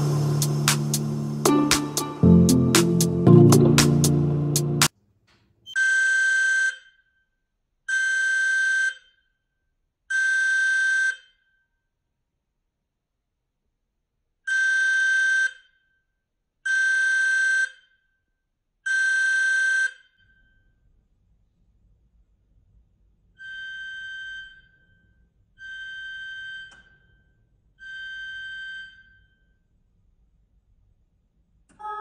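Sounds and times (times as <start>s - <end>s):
carbon monoxide alarm beeping: 25.6s - 27.0s, 27.8s - 29.4s.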